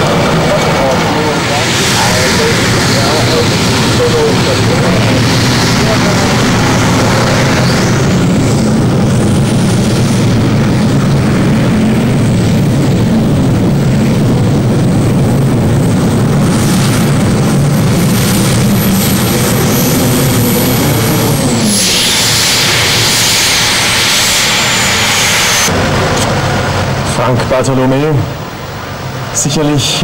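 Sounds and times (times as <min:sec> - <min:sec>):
aero engine running under load: 0:00.0 - 0:30.0.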